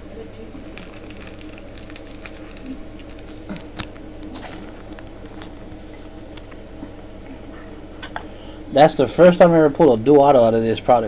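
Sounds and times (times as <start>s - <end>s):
steady low hum: 0.0s - 11.0s
cards clicking and rustling: 0.6s - 6.1s.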